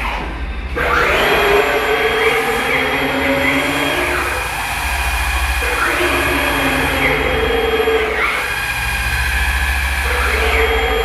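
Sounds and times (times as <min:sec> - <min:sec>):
loud steady machine hum: 0:00.0 - 0:11.0
machine drives whining in pitch sweeps: 0:00.0 - 0:11.0.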